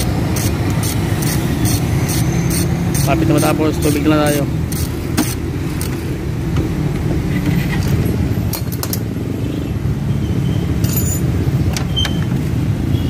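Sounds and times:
hand tools clinking on metal: 10.8 - 11.3.

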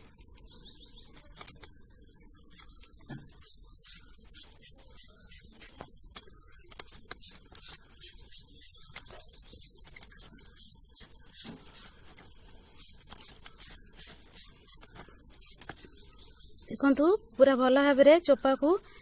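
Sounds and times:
blade scraping mango peel: 2.4 - 16.3.

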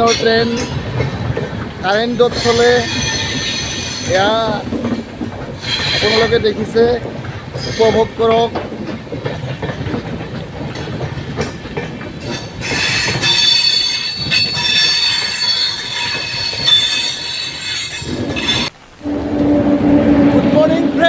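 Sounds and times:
train rumbling over rails: 0.0 - 21.0
high-pitched wheel squeal: 12.3 - 20.7.

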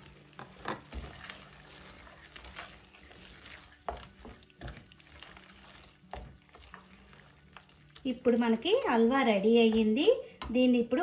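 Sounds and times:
spatula scraping in pan: 0.0 - 8.0.

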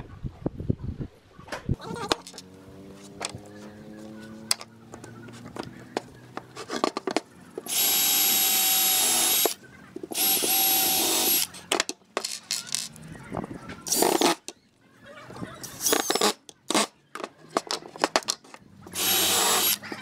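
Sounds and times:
cordless drill boring into wood: 7.7 - 9.6, 10.2 - 11.5, 18.9 - 19.8.

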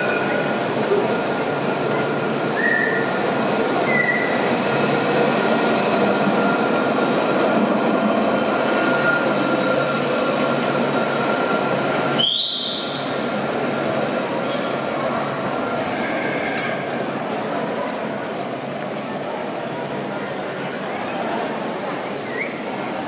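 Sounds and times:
rail vehicle rumble: 0.0 - 23.0
high wheel squeals: 15.7 - 17.1.

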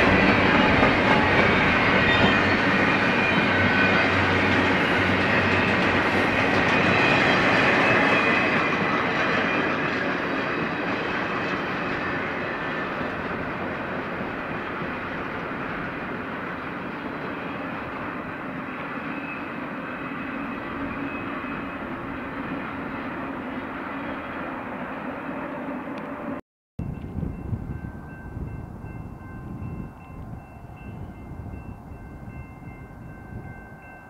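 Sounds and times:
train wheels rolling on rails: 0.0 - 34.0.

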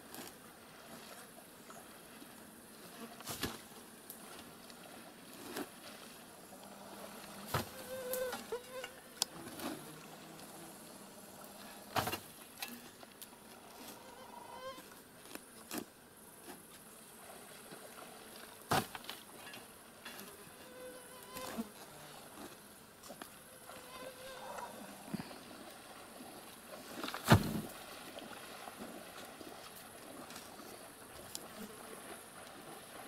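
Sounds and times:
insects buzzing: 6.4 - 18.9, 19.7 - 25.9
water splashing from swimming: 23.6 - 33.0.

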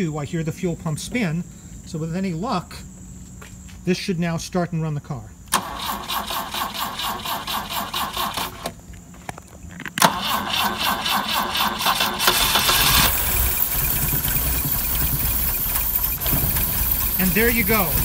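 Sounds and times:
engine cranking on starter: 5.5 - 8.8, 10.0 - 18.0
car engine running: 11.8 - 18.0.

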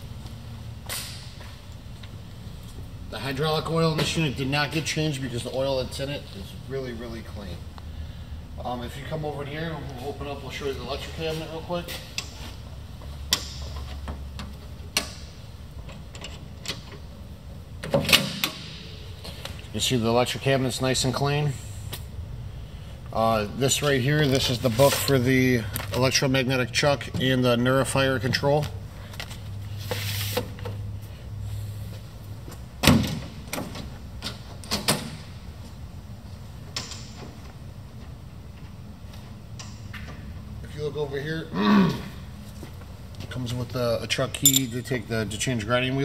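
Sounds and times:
metal latch clicking and clanking: 44.3 - 44.8
metallic rattling: 44.4 - 44.9.

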